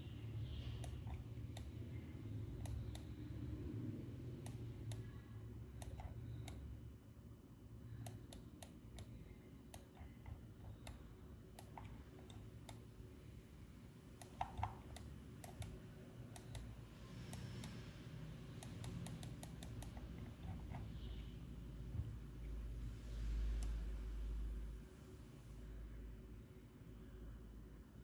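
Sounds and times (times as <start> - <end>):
low steady hum: 0.0 - 28.0
mouse and keyboard clicking: 2.6 - 3.2, 5.8 - 6.6, 14.2 - 17.9, 18.5 - 21.1.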